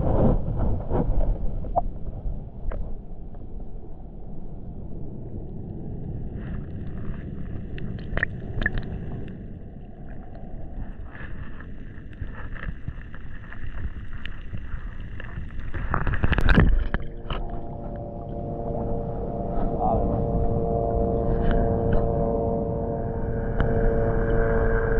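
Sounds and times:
muffled underwater rumble: 0.0s - 24.9s
small clicks and ticks: 5.4s - 18.1s
water splashing: 6.3s - 19.5s.

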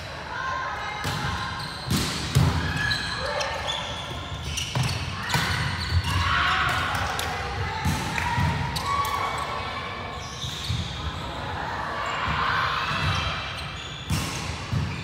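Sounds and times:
volleyball bouncing on wooden court: 1.0s - 3.1s, 3.9s - 9.2s, 12.2s - 15.0s.

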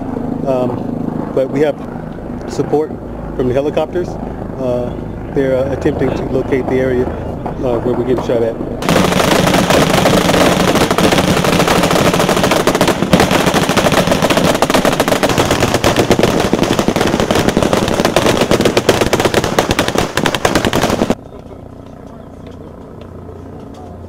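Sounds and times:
automatic machine-gun fire: 8.8s - 21.2s.

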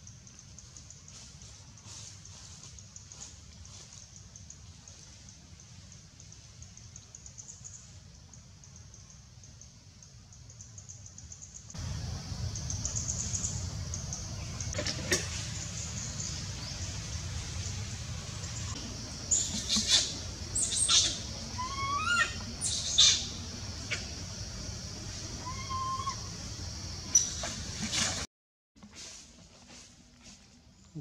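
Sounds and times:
animal chirps and squeaks: 19.3s - 24.0s.

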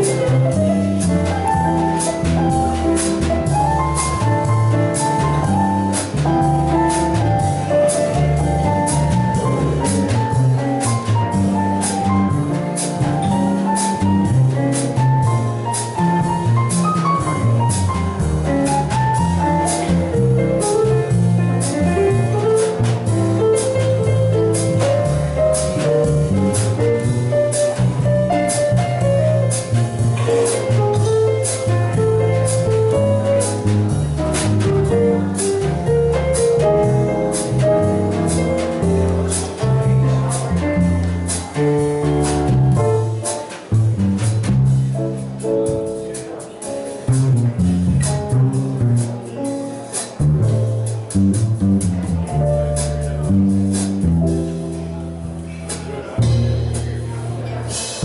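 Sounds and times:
acoustic piano: 0.0s - 58.0s
drum kit cymbals: 0.0s - 58.0s
plucked double bass: 0.0s - 58.0s.

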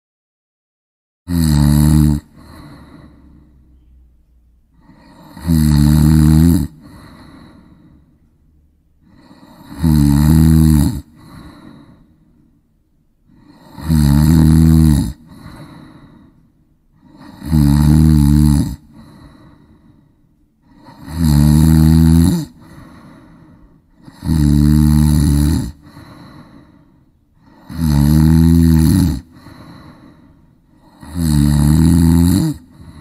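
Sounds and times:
person snoring: 1.3s - 3.9s, 4.7s - 8.2s, 9.0s - 12.2s, 13.3s - 33.0s
soft breathing: 2.3s - 5.4s, 6.7s - 9.7s, 11.1s - 13.7s, 15.2s - 17.4s, 18.8s - 21.1s, 22.5s - 24.1s, 25.7s - 27.7s, 29.2s - 31.1s, 32.6s - 33.0s.

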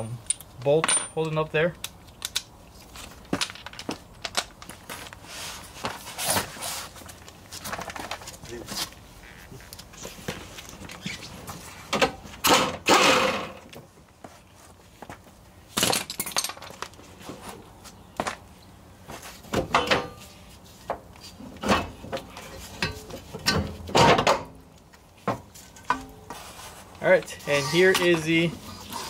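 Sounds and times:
metal clanks and scrapes: 21.3s - 24.5s, 25.6s - 29.0s.

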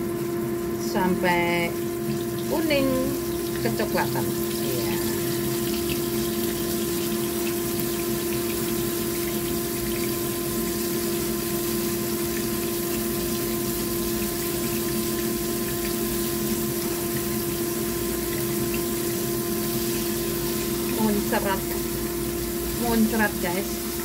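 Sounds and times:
fish sizzling in oil: 0.0s - 24.0s.

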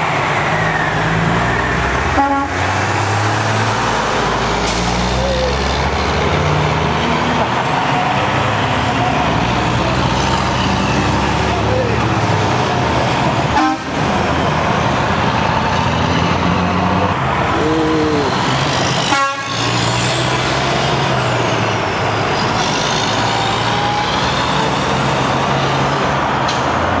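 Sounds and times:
trucks and cars passing: 0.0s - 27.0s
two-tone horn toot: 2.2s - 2.6s, 13.6s - 14.0s, 19.1s - 19.7s.

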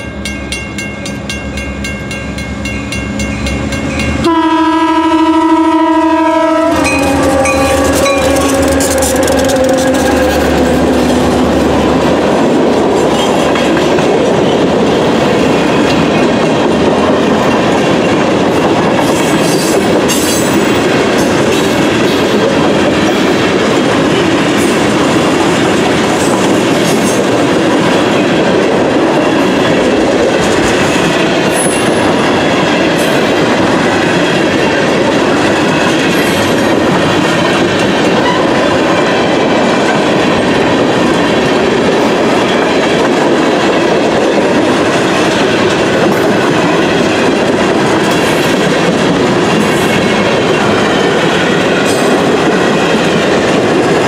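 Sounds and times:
freight train wheels on rails: 0.0s - 54.0s.

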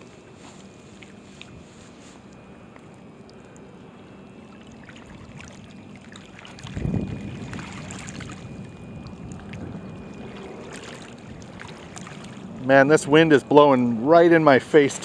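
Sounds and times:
faint ticks and rustles: 0.0s - 3.7s
wind buffeting microphone: 6.6s - 13.1s.

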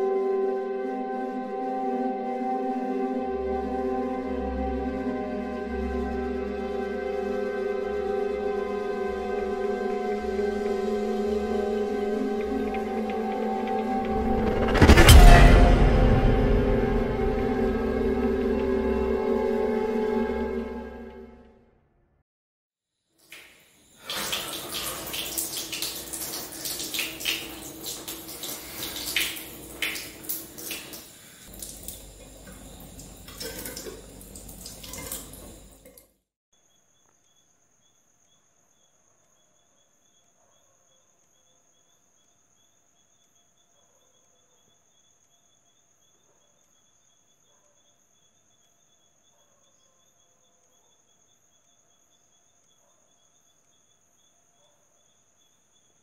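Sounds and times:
tap running into metal sink: 31.6s - 36.0s.

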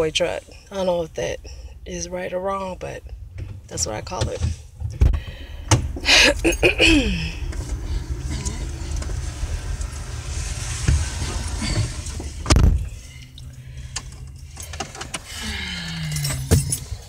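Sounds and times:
low rumble inside truck cab: 0.0s - 17.0s
heavy thump: 4.9s - 6.1s.

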